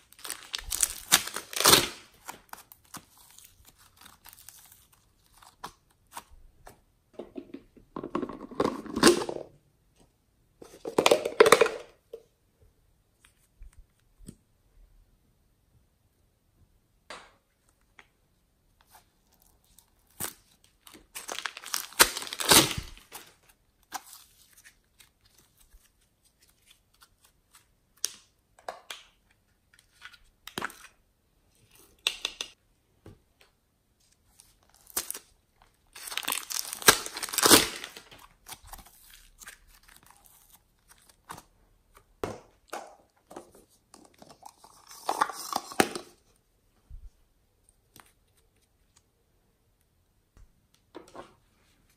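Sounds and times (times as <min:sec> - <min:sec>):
plastic crinkling and rustling: 0:00.0 - 0:06.2, 0:19.6 - 0:23.5, 0:34.4 - 0:41.4.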